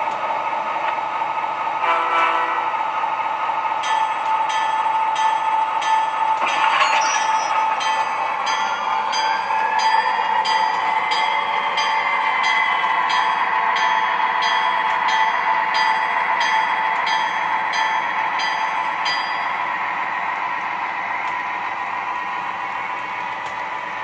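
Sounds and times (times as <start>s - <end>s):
model train motor whine: 6.4s - 9.2s.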